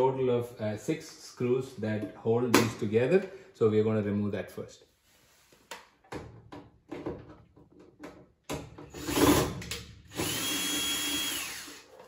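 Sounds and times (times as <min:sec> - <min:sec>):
cordless drill motor whine: 0:10.1 - 0:12.0.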